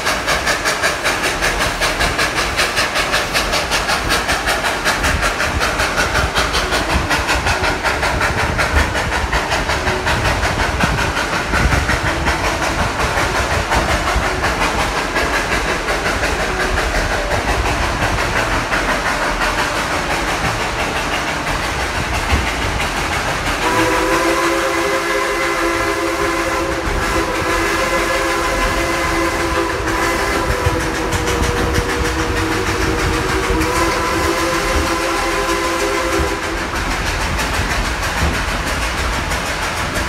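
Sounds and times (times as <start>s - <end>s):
train cars rattling on track: 0.0s - 40.0s
chime steam whistle blast: 23.6s - 31.8s.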